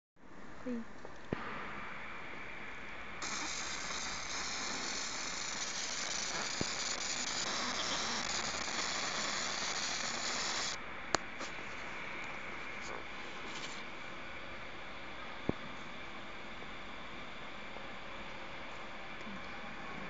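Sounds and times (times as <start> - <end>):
laser engraver high-pitched hiss: 3.2 - 10.8.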